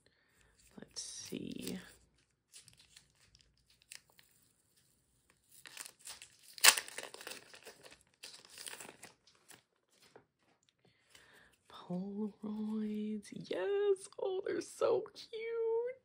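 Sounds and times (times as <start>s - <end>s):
plastic sleeve crinkling: 0.4s - 11.3s.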